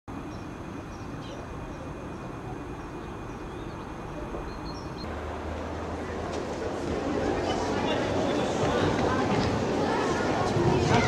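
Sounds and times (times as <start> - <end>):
faint bird chirps: 0.2 - 5.1.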